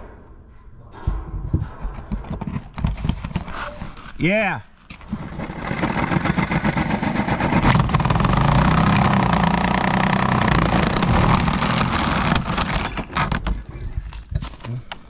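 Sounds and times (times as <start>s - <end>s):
saw cutting through vinyl siding: 5.0s - 13.7s
electric drill with hole saw: 5.1s - 12.9s.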